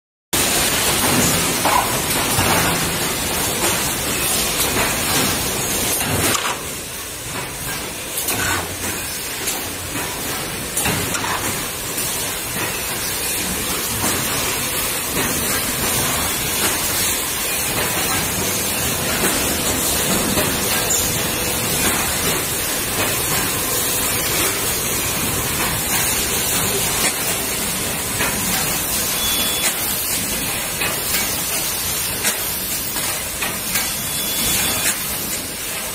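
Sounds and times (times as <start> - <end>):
machine high-pitched rushing noise: 12.2 - 30.4.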